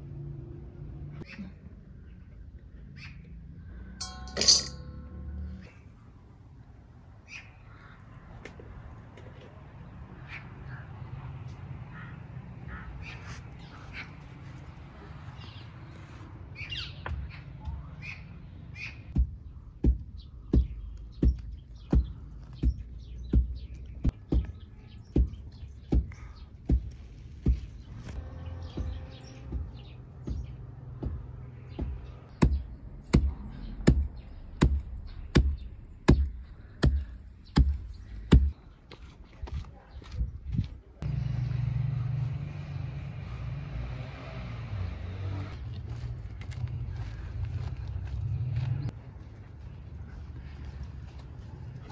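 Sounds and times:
birds calling: 1.1 - 6.2, 7.1 - 8.5, 9.9 - 43.4.

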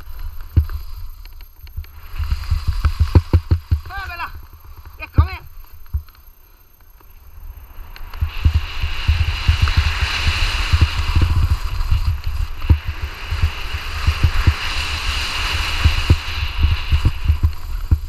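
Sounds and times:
skis sliding on snow: 0.0 - 6.1, 7.6 - 18.0
wind buffeting microphone: 8.1 - 18.0.

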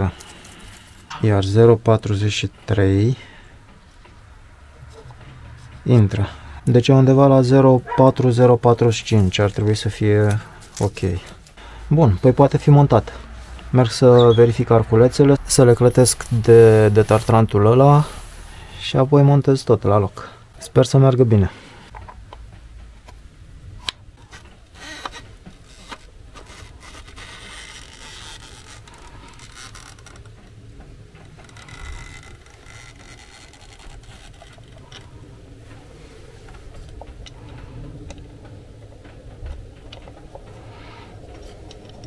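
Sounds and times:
metal parts scraping and clicking: 0.0 - 1.2.

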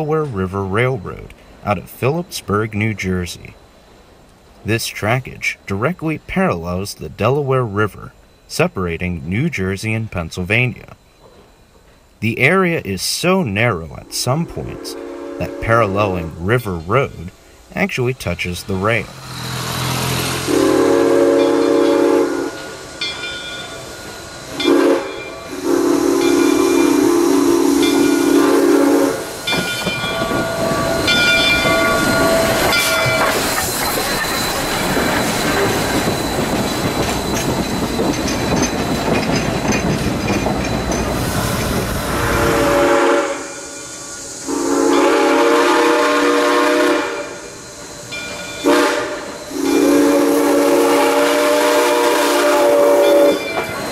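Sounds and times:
steam locomotive exhaust rushing: 0.0 - 53.9
steam whistle blasts: 14.4 - 16.0, 20.3 - 22.8, 24.5 - 29.6, 42.0 - 47.6, 48.5 - 53.6
wheels clattering on rail joints: 29.2 - 42.6, 47.6 - 50.0, 53.0 - 53.9.

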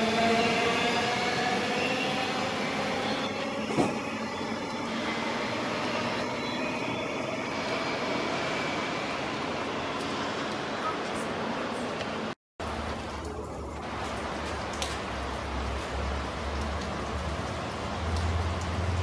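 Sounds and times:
electric train traction whine: 0.0 - 10.8
rain hissing: 12.6 - 19.0.

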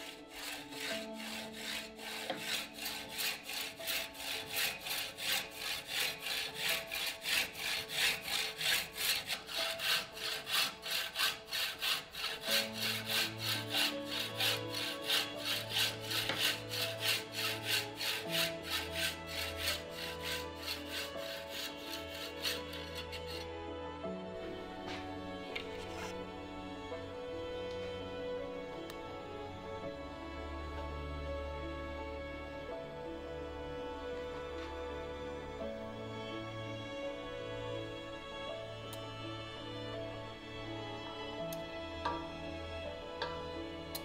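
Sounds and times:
hacksaw cutting metal tube: 0.0 - 23.5.

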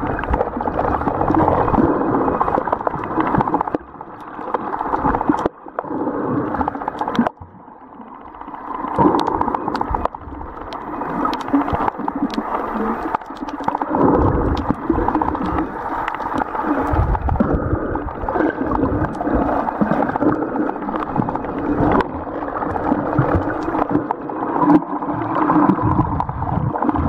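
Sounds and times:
underwater sloshing and gurgling: 0.0 - 27.0
faint clicks: 8.9 - 17.5.

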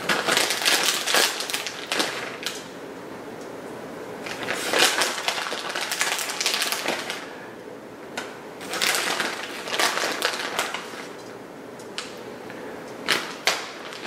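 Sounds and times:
shredded cheese rustling: 0.0 - 2.6, 4.2 - 7.4, 8.6 - 11.1.

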